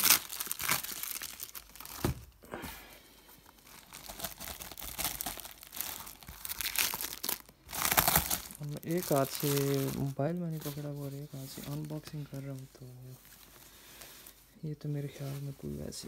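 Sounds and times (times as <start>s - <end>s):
plastic tape crinkling and tearing: 0.0s - 2.2s, 3.4s - 13.6s.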